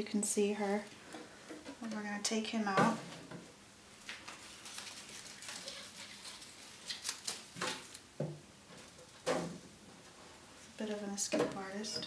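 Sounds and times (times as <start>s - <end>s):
leaves rustling and crackling: 4.0s - 8.0s.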